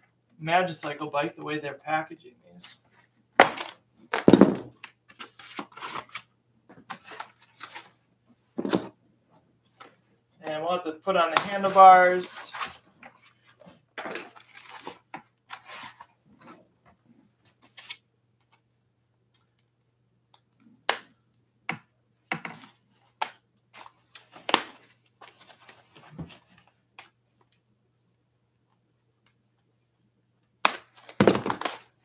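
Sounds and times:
packaging rustling and scraping: 11.5 - 16.6.

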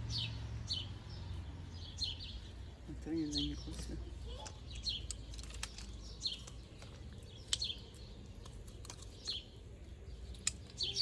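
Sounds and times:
small birds chirping: 0.0 - 11.0
pine cone cracking: 5.0 - 9.4.

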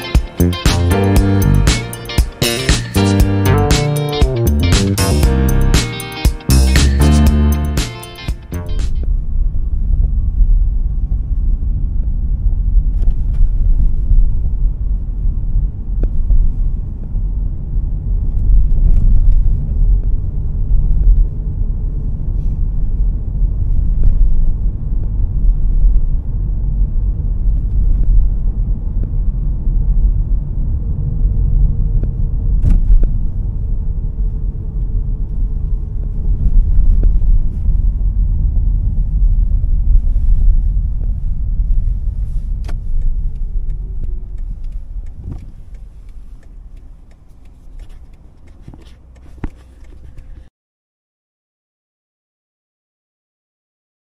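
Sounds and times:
road and tyre rumble in car: 8.9 - 50.5.

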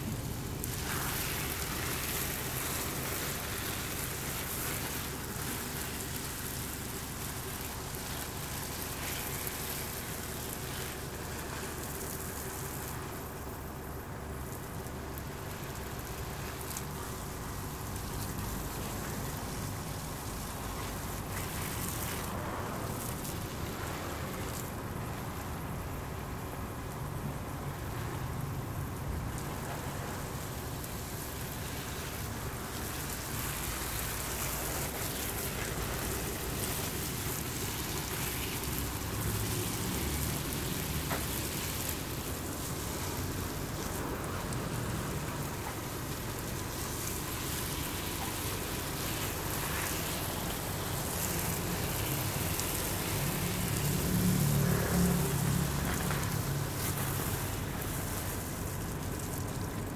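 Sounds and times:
garden hose spraying on plants: 0.0 - 59.9.

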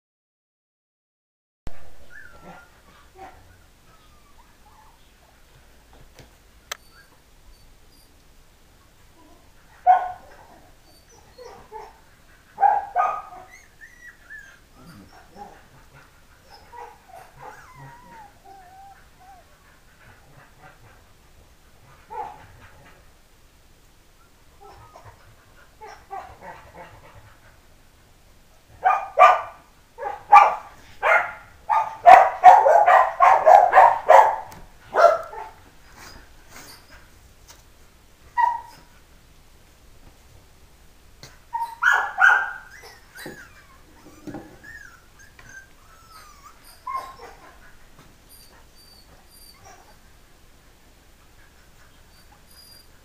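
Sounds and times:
puppies yipping and barking: 1.8 - 5.3, 9.8 - 20.8, 38.3 - 38.9, 41.5 - 50.0, 51.6 - 53.0
puppy whines: 1.8 - 5.3, 6.7 - 8.2, 10.3 - 12.0, 13.2 - 15.7, 16.4 - 19.7, 24.2 - 25.2, 35.9 - 37.0, 41.5 - 50.0, 51.9 - 53.0.

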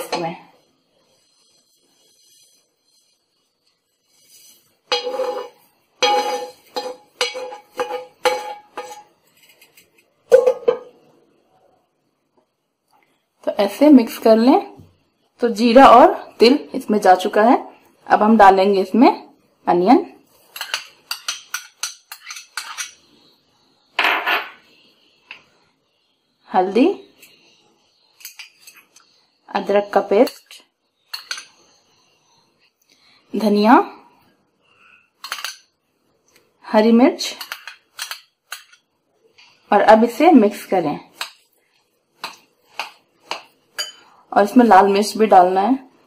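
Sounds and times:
metal spoon knocking on pan: 4.9 - 9.1
glassware clattering: 4.9 - 9.7, 10.3 - 11.0, 43.8 - 44.1.

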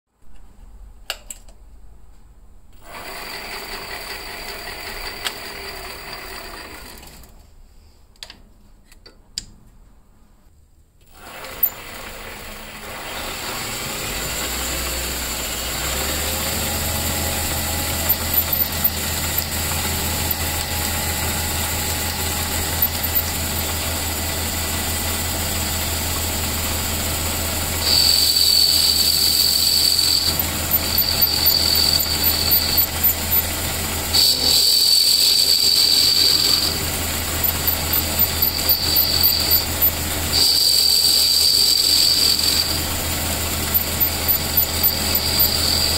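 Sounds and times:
lathe motor humming: 11.2 - 45.9
lathe tool cutting with high whine: 11.2 - 45.9.

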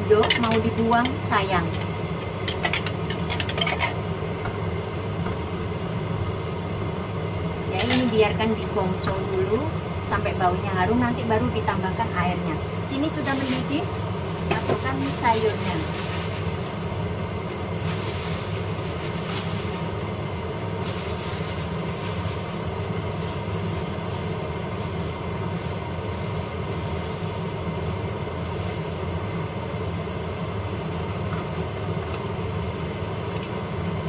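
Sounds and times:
kitchen fan humming: 0.0 - 34.0
plastic bag rustling: 13.0 - 30.0.

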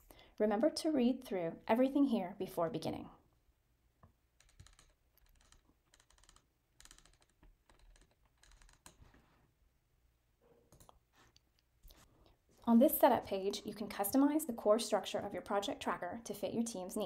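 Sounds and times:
mouse scroll wheel clicking: 4.4 - 9.2.

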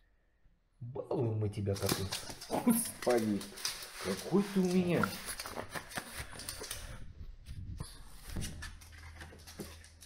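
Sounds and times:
dog claws clicking on wooden floor: 1.8 - 7.0, 8.3 - 10.0.

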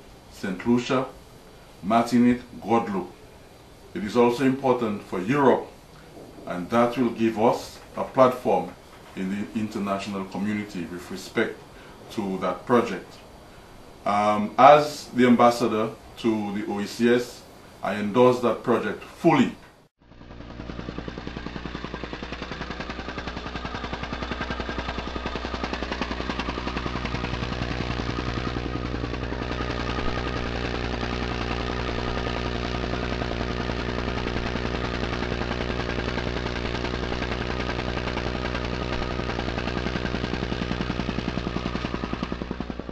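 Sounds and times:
engine running with fast pulse: 0.0 - 14.6, 19.7 - 42.9.

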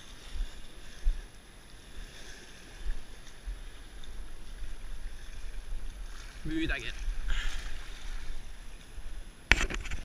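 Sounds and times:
small waves against rocks: 0.0 - 10.0
wind buffeting microphone: 1.9 - 10.0.

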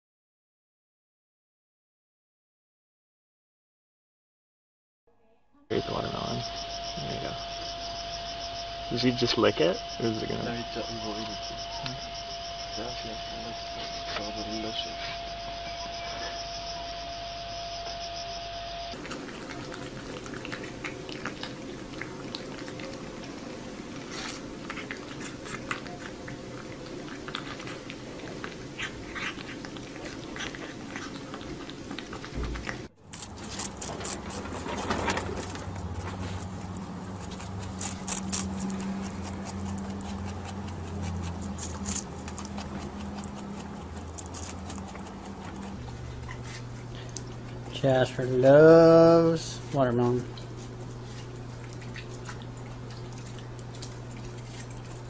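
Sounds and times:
low hum: 5.2 - 55.0
animal chewing watermelon: 18.9 - 55.0.

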